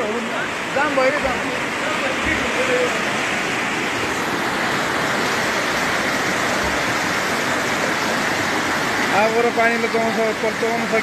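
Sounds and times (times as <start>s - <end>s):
floodwater rushing down street: 0.0s - 11.0s.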